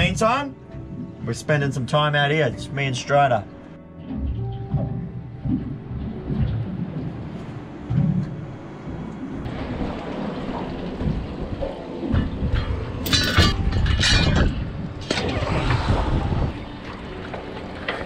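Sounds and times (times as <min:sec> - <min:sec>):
water splashing: 0:03.4 - 0:18.0
wind buffeting microphone: 0:04.2 - 0:17.8.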